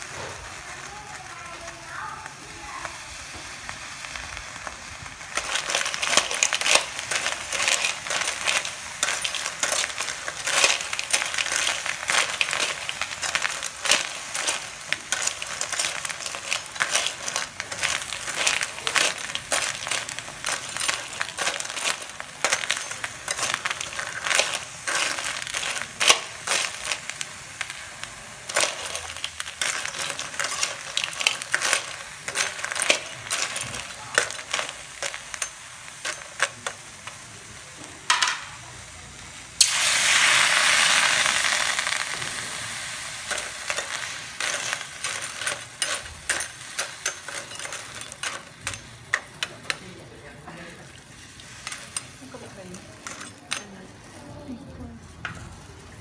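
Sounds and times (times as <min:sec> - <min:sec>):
sudden loud sizzle: 0:00.0 - 0:31.1, 0:36.5 - 0:45.0
frying sizzle: 0:00.0 - 0:56.0
crab shells clattering in a wok: 0:00.1 - 0:56.0.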